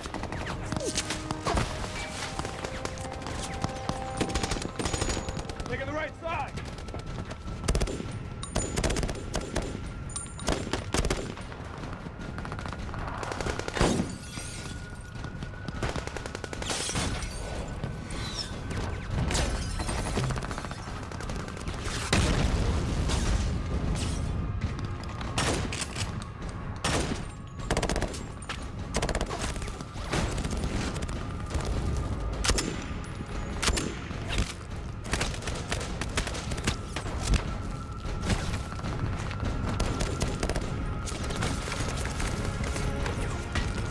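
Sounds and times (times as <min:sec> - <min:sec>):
rifle and machine-gun fire: 0:02.3 - 0:14.1, 0:15.7 - 0:16.8, 0:26.8 - 0:32.8, 0:33.5 - 0:37.5, 0:38.2 - 0:42.8.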